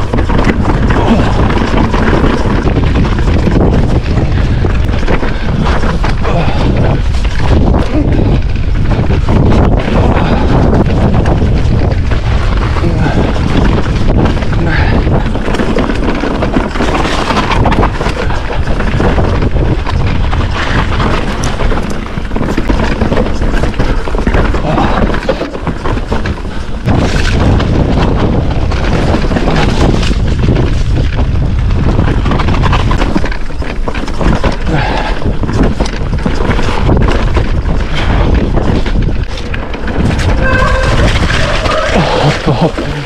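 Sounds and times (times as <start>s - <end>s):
mountain bike rattling and knocking: 0.0s - 43.0s
tyres rolling over rock and dirt: 0.0s - 43.0s
wind buffeting microphone: 0.0s - 43.0s.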